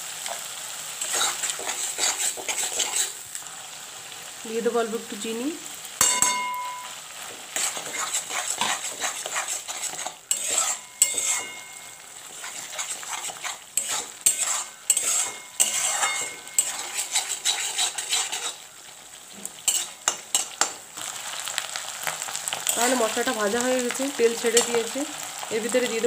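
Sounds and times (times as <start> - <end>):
oil sizzling: 0.0 - 26.0
spatula scraping paste in pan: 1.0 - 3.2, 7.3 - 18.6, 19.6 - 20.8
spatula clinking on metal pan: 6.0 - 7.0, 7.6 - 18.6, 19.6 - 20.8.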